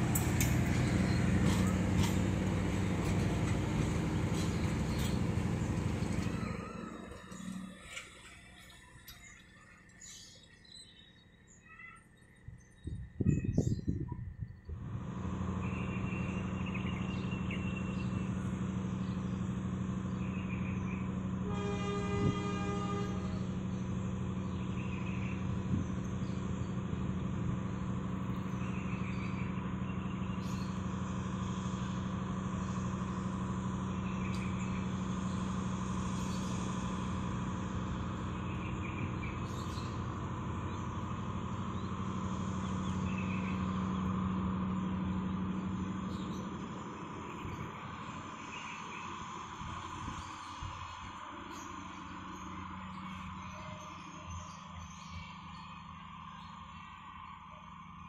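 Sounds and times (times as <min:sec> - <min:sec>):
train wheels rumbling on rail: 0:00.0 - 0:09.6, 0:13.0 - 0:55.8
train horn: 0:21.4 - 0:23.7.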